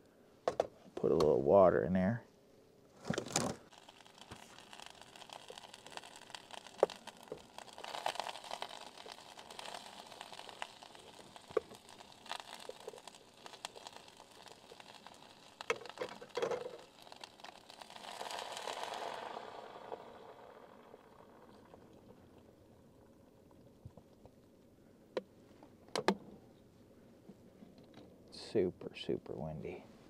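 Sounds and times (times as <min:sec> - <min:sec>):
electric cooker water heating hiss: 0:03.0 - 0:24.6.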